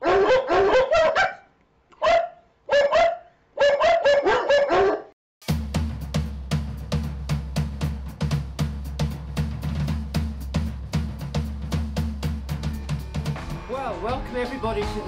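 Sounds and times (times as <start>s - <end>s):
drum kit beat: 5.4s - 15.0s.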